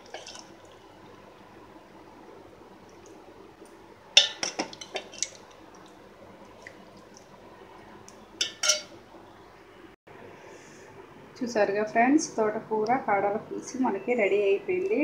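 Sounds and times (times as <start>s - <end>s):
liquid sloshing: 0.0s - 0.9s, 4.2s - 7.5s
ladle scraping metal pot: 4.2s - 5.4s, 8.4s - 8.9s.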